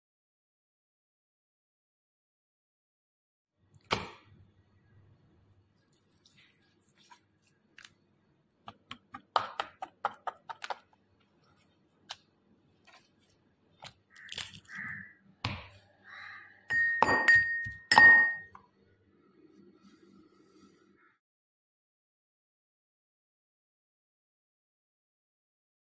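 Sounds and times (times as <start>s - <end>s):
ringing clinks of kitchenware: 16.7s - 18.6s.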